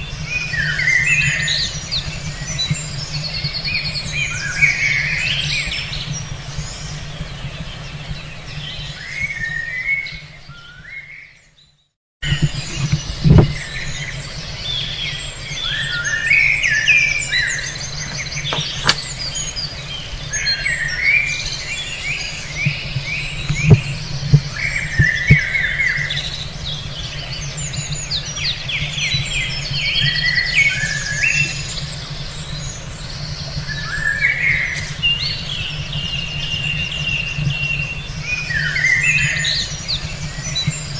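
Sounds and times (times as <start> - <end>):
songbirds chirping and trilling: 0.0 - 40.9
short knocks: 18.0 - 19.1.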